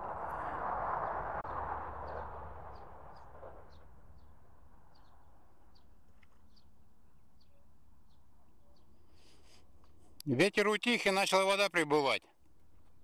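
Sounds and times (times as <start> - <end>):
small bird chirping: 2.7 - 9.4.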